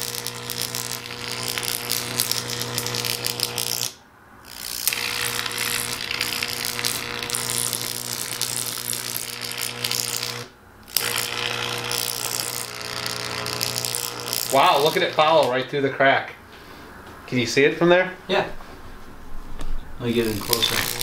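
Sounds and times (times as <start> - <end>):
electric arc snapping: 0.0 - 15.7, 20.1 - 21.0
electric arc buzzing: 0.0 - 15.8, 20.0 - 21.0.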